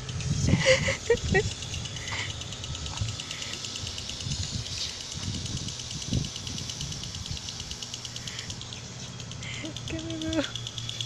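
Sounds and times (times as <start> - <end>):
wind buffeting microphone: 0.0 - 7.8
fast high-pitched ticking: 0.0 - 11.0.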